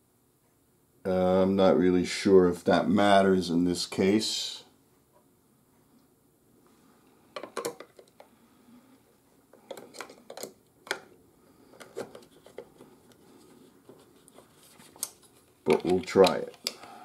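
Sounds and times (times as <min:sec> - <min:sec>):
plastic clicks and knocks: 0:07.4 - 0:08.3, 0:09.6 - 0:11.1.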